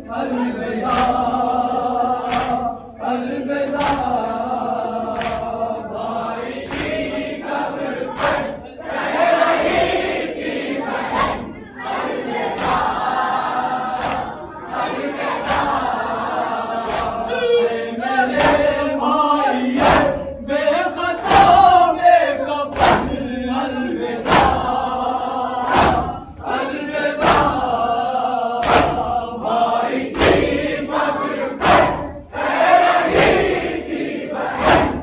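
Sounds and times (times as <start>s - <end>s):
men singing in chorus: 0.0s - 35.0s
chest beating slaps: 0.8s - 1.4s, 2.2s - 2.8s, 3.7s - 4.2s, 5.1s - 5.6s, 6.4s - 7.2s, 16.9s - 17.3s, 18.3s - 18.8s, 19.8s - 20.3s, 21.2s - 21.8s, 22.7s - 23.2s, 24.2s - 24.8s, 25.6s - 26.4s, 27.2s - 27.7s, 28.6s - 29.2s, 30.1s - 30.7s, 33.0s - 33.7s, 34.6s - 35.0s.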